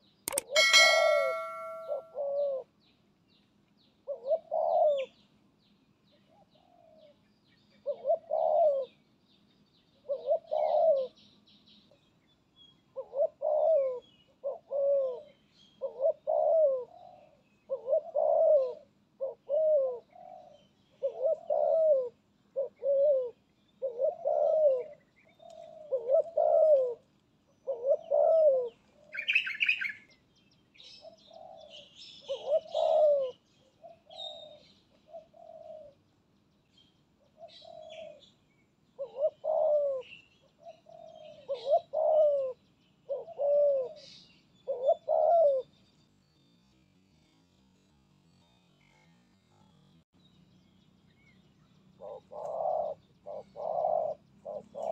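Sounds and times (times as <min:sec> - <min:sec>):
faint bird twittering: 0:00.0 - 0:02.6, 0:27.6 - 0:54.9
small bird chirp: 0:00.0 - 0:02.6, 0:27.6 - 0:36.0
dove cooing: 0:00.3 - 0:02.7, 0:04.0 - 0:05.2, 0:07.8 - 0:09.0, 0:10.0 - 0:11.2, 0:13.0 - 0:27.0, 0:27.6 - 0:30.1, 0:30.8 - 0:36.0, 0:37.3 - 0:38.3, 0:39.0 - 0:45.7, 0:51.9 - 0:54.9.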